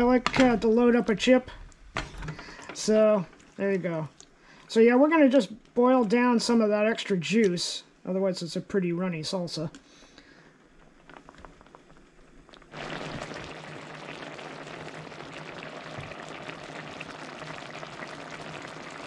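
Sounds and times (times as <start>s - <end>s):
salsa bubbling in a skillet: 10.2s - 19.0s.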